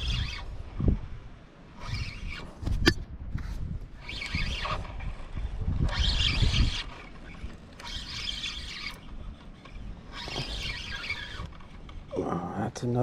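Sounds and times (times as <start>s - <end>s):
fishing reel cranking: 0.0s - 0.6s, 1.8s - 2.5s, 4.0s - 12.2s
wind rumbling on microphone: 0.0s - 12.3s.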